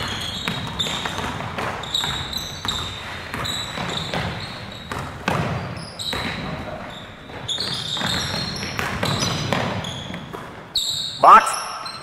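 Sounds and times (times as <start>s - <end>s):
basketball bouncing on wooden floor: 0.0s - 6.6s, 7.3s - 10.5s
sneaker squeaks: 0.0s - 12.0s.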